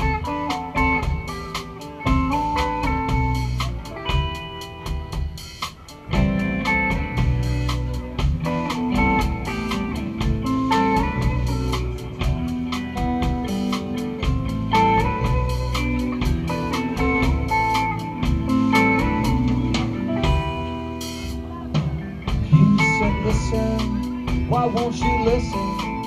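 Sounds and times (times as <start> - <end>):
drum kit beat: 0.0 - 26.0
electric guitars: 0.0 - 26.0.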